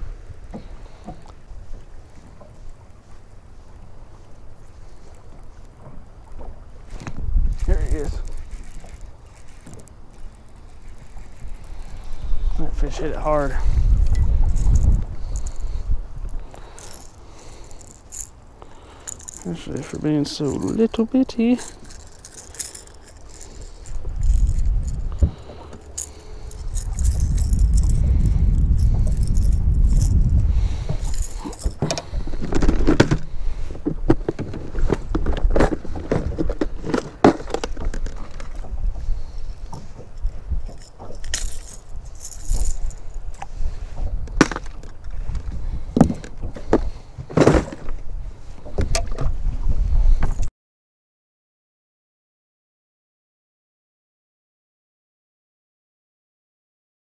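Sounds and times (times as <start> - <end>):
plastic tackle boxes rattling: 6.9 - 15.8, 16.4 - 43.5, 44.3 - 48.0.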